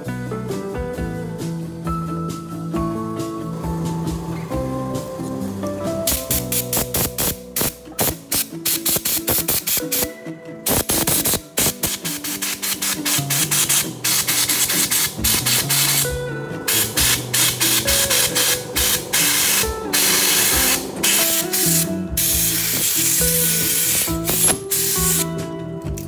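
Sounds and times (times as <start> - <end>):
background music: 0.0 - 26.0
air blow gun hissing: 6.0 - 25.4.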